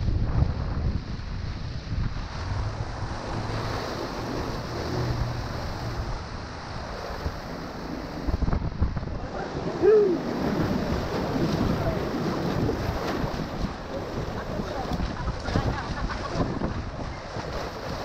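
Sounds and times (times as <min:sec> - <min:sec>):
wind buffeting microphone: 0:00.0 - 0:18.0
whitewater rushing and splashing: 0:00.1 - 0:18.0
person shouting: 0:09.8 - 0:10.2.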